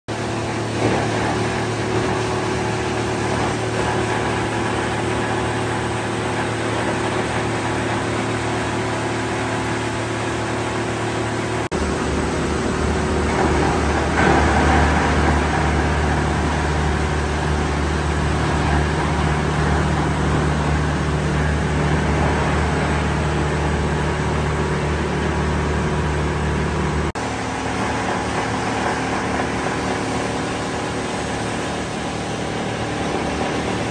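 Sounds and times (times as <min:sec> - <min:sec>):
recycling machinery running: 0:00.1 - 0:33.9.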